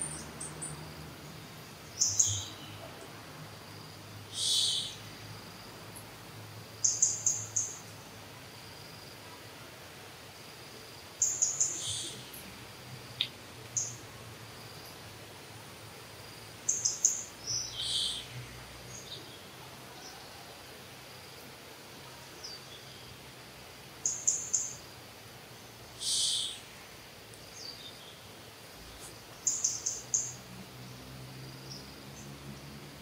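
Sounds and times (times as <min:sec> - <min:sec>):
bird chirping: 0:00.0 - 0:03.1, 0:04.3 - 0:05.1, 0:06.8 - 0:08.0, 0:11.2 - 0:12.4, 0:13.1 - 0:14.0, 0:16.7 - 0:20.3, 0:24.0 - 0:24.8, 0:25.9 - 0:26.7, 0:27.4 - 0:28.3, 0:28.9 - 0:30.4
faint background hiss: 0:00.0 - 0:33.0.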